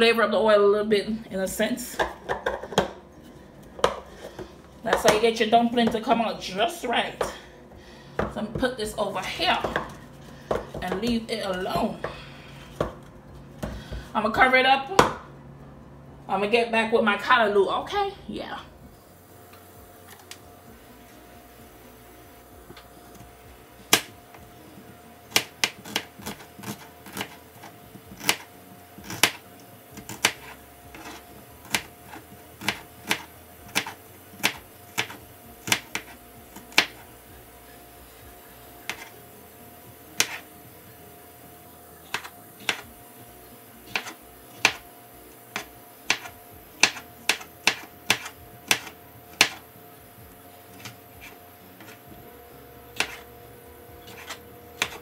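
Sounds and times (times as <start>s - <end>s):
faint steady hum: 0.0s - 55.0s
knife chopping on plastic board: 3.8s - 4.1s, 25.3s - 27.4s, 28.1s - 28.4s, 29.0s - 29.4s, 30.0s - 31.9s, 32.6s - 36.1s, 40.2s - 40.4s, 42.1s - 42.9s, 43.9s - 44.8s, 45.6s - 49.6s, 53.0s - 53.3s, 54.0s - 55.0s.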